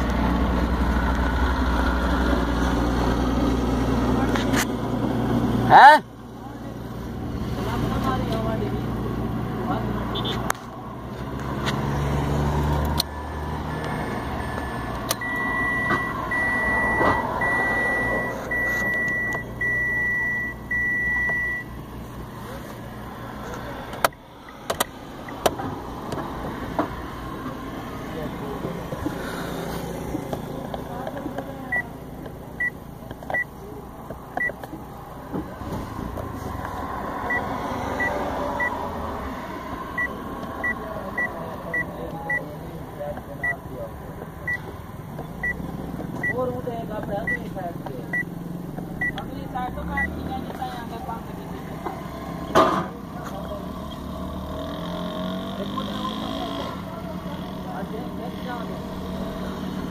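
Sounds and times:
loud high dashboard beep: 0:13.9 - 0:21.8, 0:32.6 - 0:33.5, 0:37.3 - 0:38.8, 0:40.0 - 0:42.5, 0:43.4 - 0:43.6, 0:45.4 - 0:45.6, 0:46.2 - 0:46.5, 0:47.2 - 0:47.5, 0:48.1 - 0:48.3, 0:49.0 - 0:49.2
short high beeps: 0:15.2 - 0:21.7.

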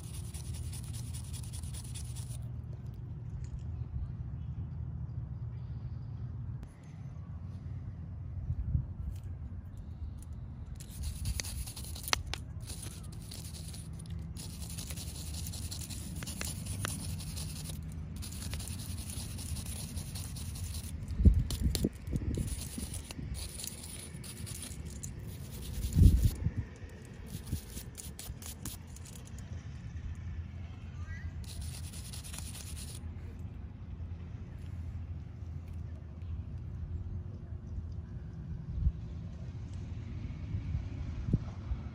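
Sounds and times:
brush scrubbing metal: 0:00.0 - 0:02.4, 0:10.8 - 0:26.4, 0:27.2 - 0:29.2, 0:31.4 - 0:33.0.

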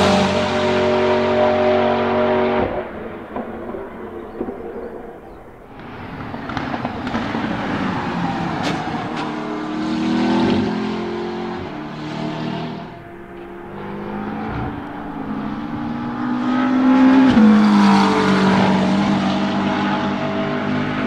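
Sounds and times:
race car engine accelerating: 0:00.0 - 0:21.0
engine sharp cracks: 0:02.5 - 0:09.7.

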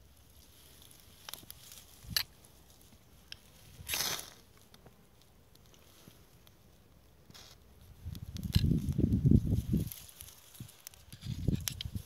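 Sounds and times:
knife scraping fire starter rod: 0:01.2 - 0:02.4, 0:10.8 - 0:12.0.

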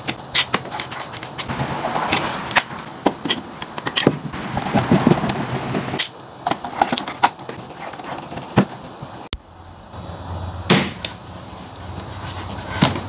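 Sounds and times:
low rumbling clatter: 0:01.3 - 0:09.3.

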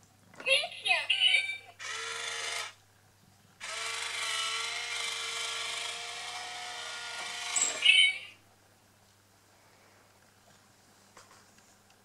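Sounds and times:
small electric motor whirring: 0:01.8 - 0:02.8, 0:03.6 - 0:08.0.

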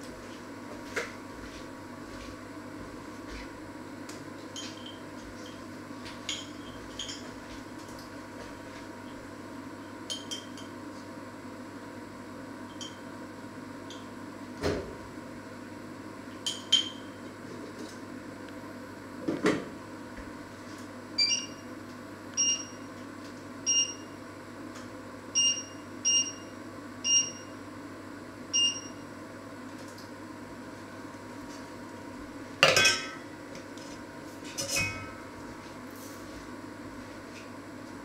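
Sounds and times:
glass clink: 0:06.3 - 0:07.2, 0:10.1 - 0:10.7, 0:12.7 - 0:13.0, 0:16.5 - 0:17.1, 0:32.6 - 0:33.2
kitchenware clattering: 0:32.6 - 0:33.2, 0:34.6 - 0:35.2.

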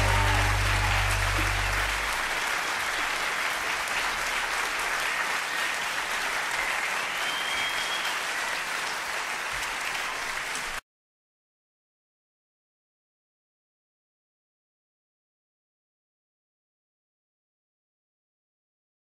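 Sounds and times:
music final held chord: 0:00.0 - 0:02.2
audience applauding: 0:00.0 - 0:10.8.

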